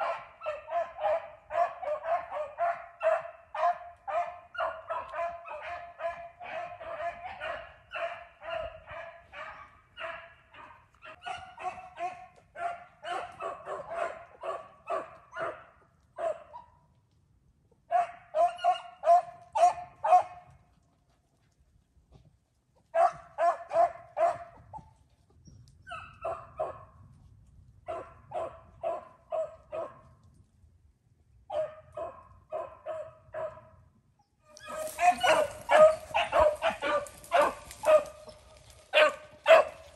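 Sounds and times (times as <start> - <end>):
beagles baying: 34.6 - 39.9.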